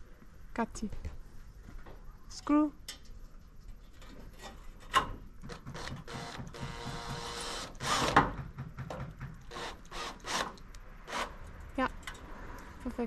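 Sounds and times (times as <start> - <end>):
cordless drill driving a screw: 5.7 - 8.2, 9.5 - 11.4.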